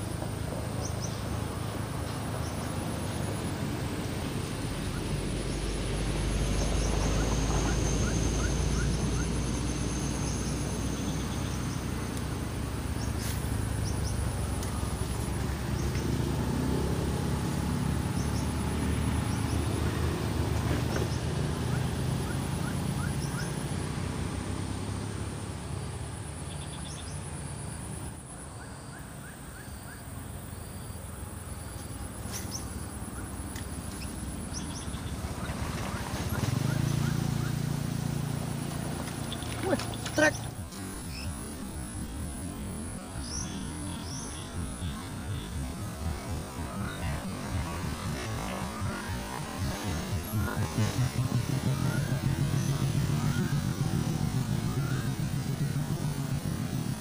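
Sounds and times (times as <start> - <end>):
insects chirping: 0.0 - 57.0
bird chirps: 20.9 - 23.7, 39.1 - 41.5.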